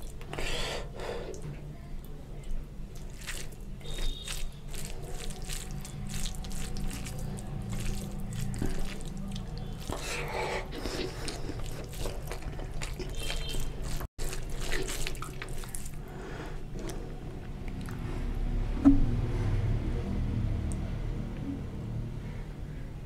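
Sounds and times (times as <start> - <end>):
hand mixing wet rice: 2.9 - 16.4
wet chewing mouth sounds: 2.9 - 18.1.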